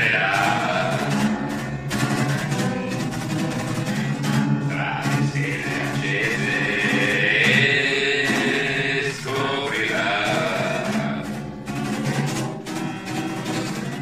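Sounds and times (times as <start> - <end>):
man singing a pop song: 0.0 - 1.3, 4.7 - 11.4
strummed acoustic guitar: 0.0 - 14.0.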